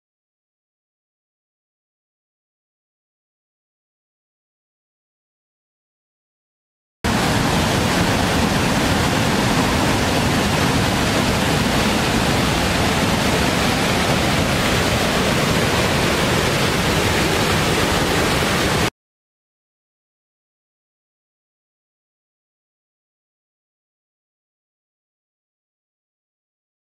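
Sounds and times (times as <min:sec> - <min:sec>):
waterfall rushing: 0:07.1 - 0:18.9.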